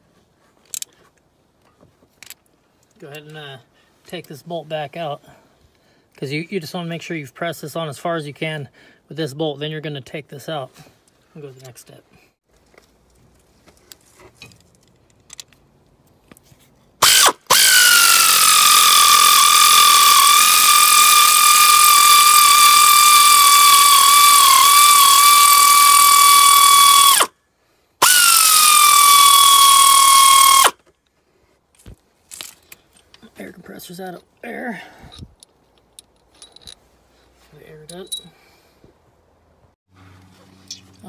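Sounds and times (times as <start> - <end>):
pneumatic air ratchet whining: 17.0 - 27.3, 28.0 - 30.8.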